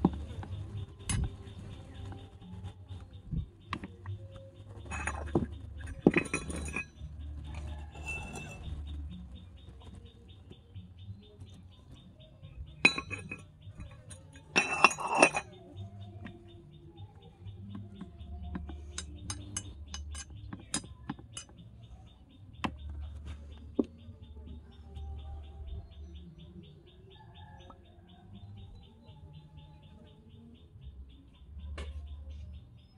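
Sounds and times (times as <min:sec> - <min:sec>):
spoon clinking against metal wok: 0:12.8 - 0:16.4, 0:17.7 - 0:21.8.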